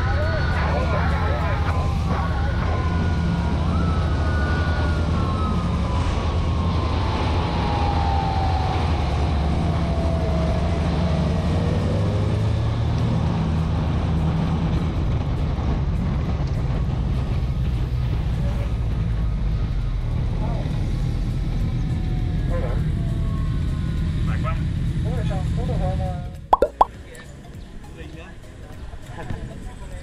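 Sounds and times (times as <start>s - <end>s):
falling pitched tone: 26.6s - 26.9s.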